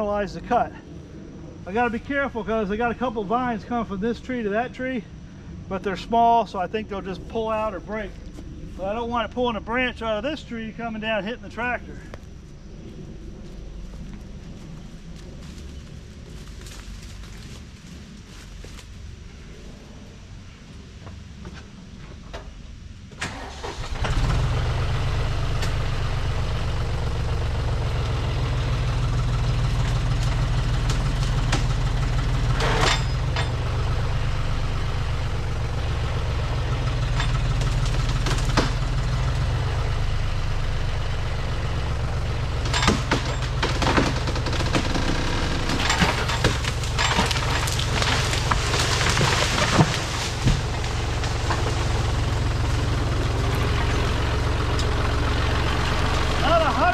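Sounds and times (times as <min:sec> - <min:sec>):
tractor engine running under load: 0:23.1 - 0:56.9
wood cracking: 0:27.8 - 0:33.8, 0:36.7 - 0:39.4, 0:42.6 - 0:56.4.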